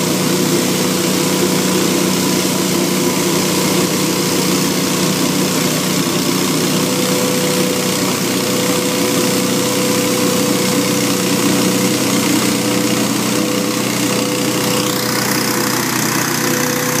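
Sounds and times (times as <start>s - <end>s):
leaf blower engine drone: 0.0s - 17.0s.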